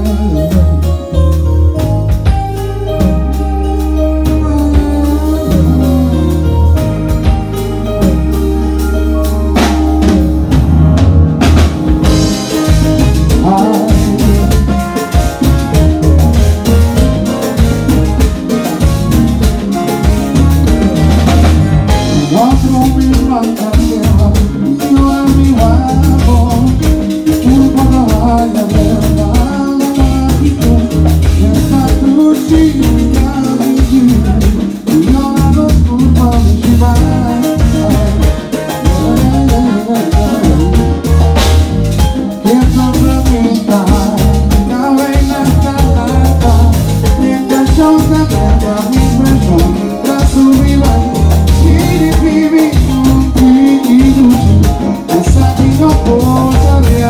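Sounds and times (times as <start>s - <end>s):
man singing into microphone: 0.0s - 1.4s, 2.9s - 7.0s, 12.0s - 15.8s, 21.9s - 41.6s, 42.2s - 57.0s
drum kit: 0.0s - 57.0s
heavy rhythmic bass: 0.0s - 57.0s
keyboards: 0.0s - 57.0s.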